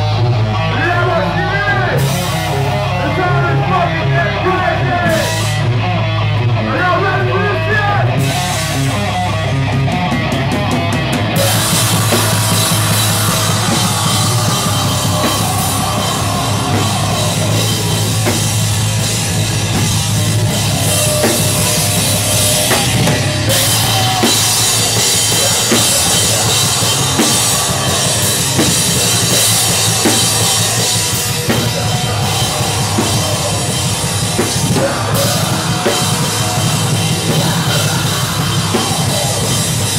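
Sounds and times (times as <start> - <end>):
drum kit: 0.0 - 6.7, 8.1 - 39.9
electric guitar: 0.0 - 39.9
cymbals: 11.4 - 37.4.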